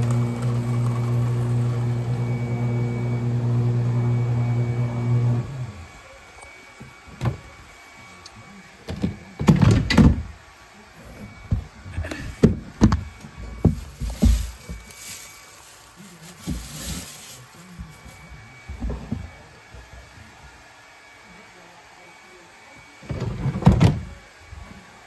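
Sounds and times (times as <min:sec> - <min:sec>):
paper shredder motor humming: 0:00.0 - 0:08.8, 0:11.3 - 0:19.7.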